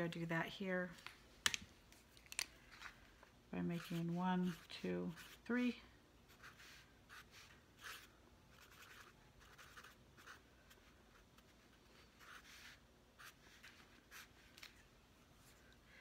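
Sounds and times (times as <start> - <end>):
marker scratching on paper: 3.6 - 5.6, 6.3 - 11.6, 12.2 - 14.5.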